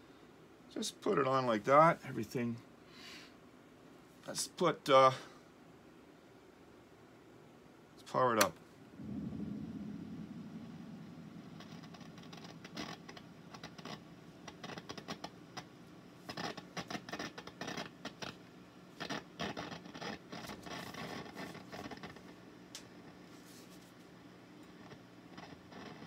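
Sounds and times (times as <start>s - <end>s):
faint steady hum: 0.0s - 26.0s
hands scratching and clicking on amp: 11.4s - 18.4s, 19.0s - 23.2s, 24.7s - 26.0s.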